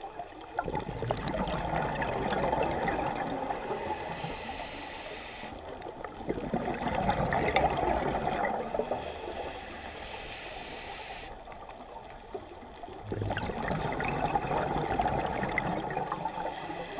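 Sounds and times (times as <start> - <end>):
underwater bubbles from exhaling: 0.0 - 4.2, 5.6 - 9.5, 11.6 - 16.9.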